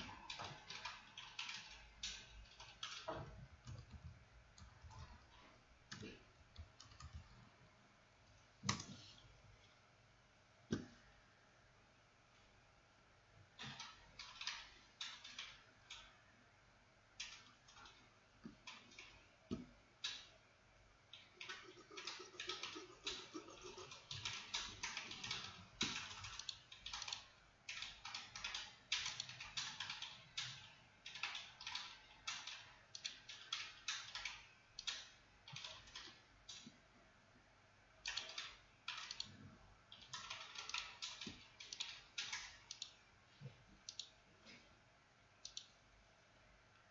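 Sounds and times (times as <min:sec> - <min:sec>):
typing on keyboard: 0:00.0 - 0:07.2, 0:13.6 - 0:16.1, 0:21.1 - 0:36.7, 0:38.0 - 0:43.0.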